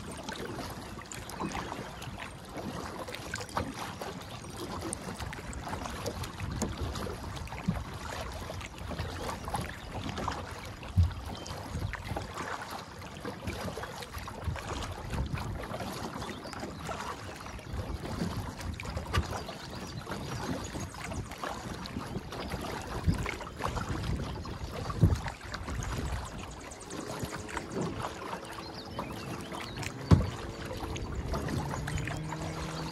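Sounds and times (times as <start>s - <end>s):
water splashing against hull: 0.0s - 32.9s
wind buffeting microphone: 14.2s - 15.9s, 17.6s - 32.9s.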